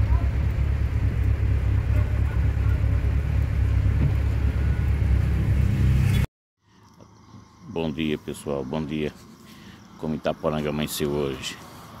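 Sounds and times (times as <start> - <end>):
rain hissing on windshield: 0.0 - 5.3
car cabin low rumble: 0.0 - 6.2.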